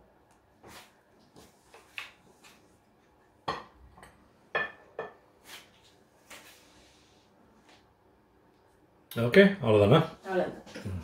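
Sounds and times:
dishes and utensils clinking: 0:03.5 - 0:05.2.

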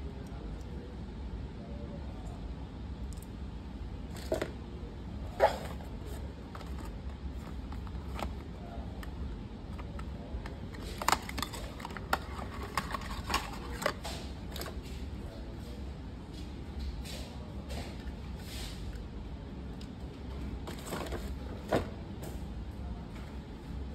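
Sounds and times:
hands handling packaging: 0:05.4 - 0:15.0, 0:20.6 - 0:21.8.

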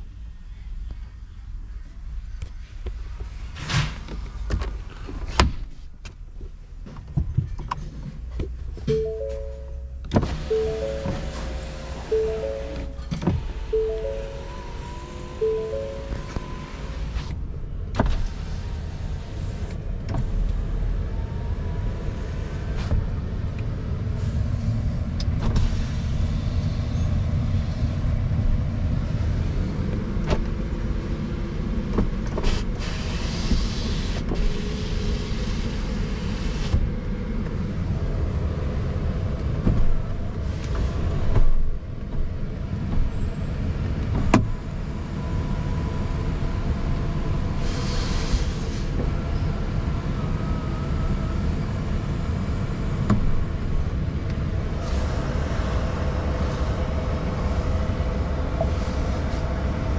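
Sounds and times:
low rumble inside truck cab: 0:00.0 - 0:59.9
electric window motor whirring: 0:10.2 - 0:17.4.

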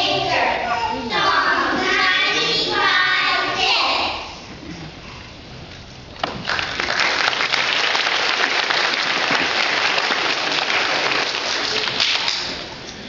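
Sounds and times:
audience applauding: 0:06.2 - 0:12.7.

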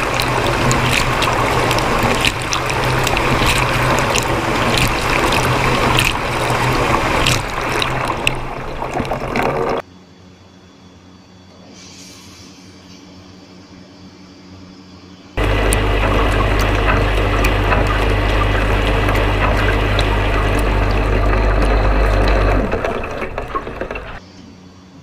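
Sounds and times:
dishwasher pump humming: 0:00.0 - 0:09.8, 0:15.4 - 0:24.2
water spraying hard: 0:00.0 - 0:09.8, 0:15.4 - 0:24.2.

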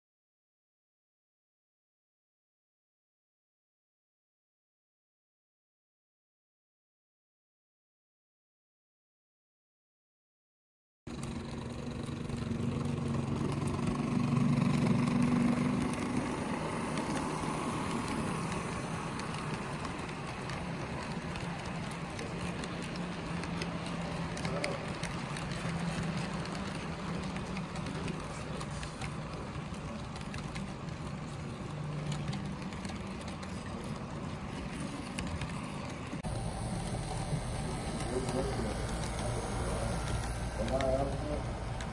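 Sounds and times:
faint clicking of rolling stock: 0:11.1 - 0:41.9
model train humming: 0:11.1 - 0:41.9.

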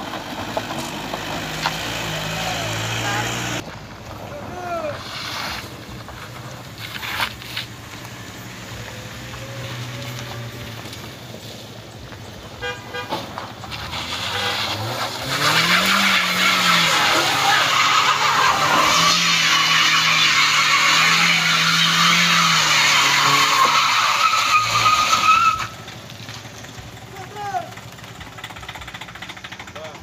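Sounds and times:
car engine revving hard: 0:00.4 - 0:03.6, 0:13.6 - 0:25.8
tyres squealing: 0:13.0 - 0:26.1.

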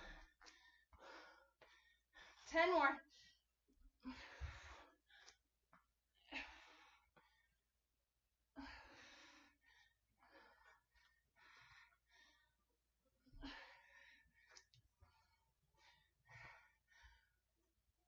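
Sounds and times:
woman breathing heavily: 0:00.0 - 0:05.4, 0:06.1 - 0:07.7, 0:08.5 - 0:17.8.

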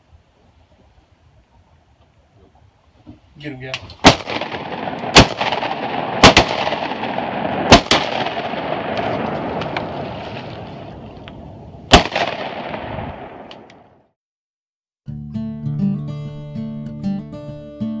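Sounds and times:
shotguns firing: 0:04.0 - 0:11.0, 0:11.9 - 0:13.8.

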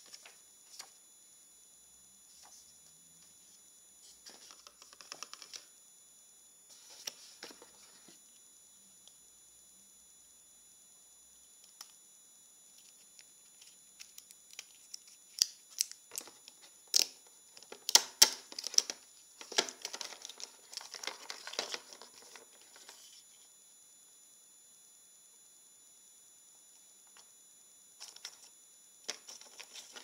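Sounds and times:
packaging crinkling and rustling: 0:17.6 - 0:23.1.

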